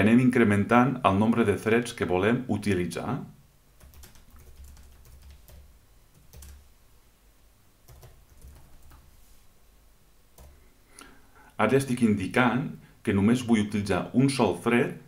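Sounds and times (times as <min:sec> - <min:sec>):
faint keyboard typing: 0:03.8 - 0:06.7, 0:07.8 - 0:09.1, 0:10.3 - 0:11.1.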